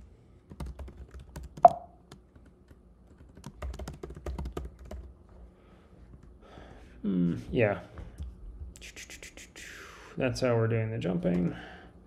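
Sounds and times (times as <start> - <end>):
computer keyboard typing: 0.5 - 5.1.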